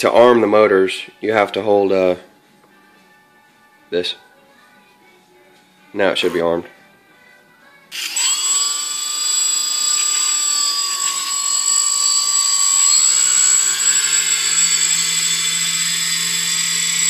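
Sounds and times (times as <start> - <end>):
high-pitched electric motor whine: 7.9 - 17.0
low hum: 8.4 - 17.0.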